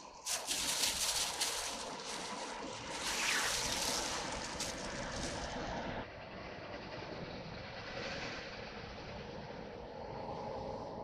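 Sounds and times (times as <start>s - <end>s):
plastic bag rustling: 0.3s - 5.5s.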